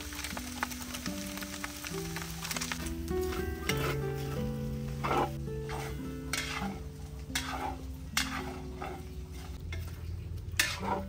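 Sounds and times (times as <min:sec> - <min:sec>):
meat frying in a wok: 0:00.0 - 0:11.0
soft background music: 0:00.0 - 0:11.0
metal spatula scraping a wok: 0:03.2 - 0:11.0.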